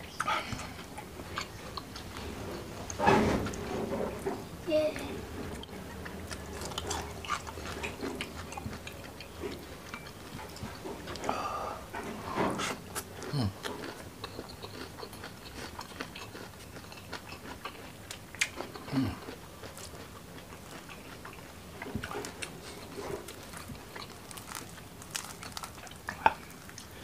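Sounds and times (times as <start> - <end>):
man chewing food: 0.0 - 4.6, 5.3 - 27.0
small crunches: 17.4 - 26.9.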